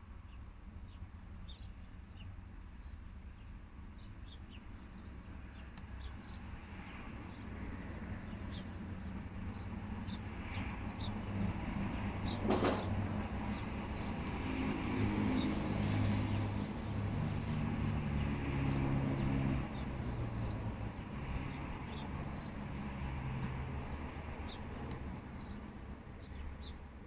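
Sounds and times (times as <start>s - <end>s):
vehicle engine rumbling: 8.6s - 18.0s.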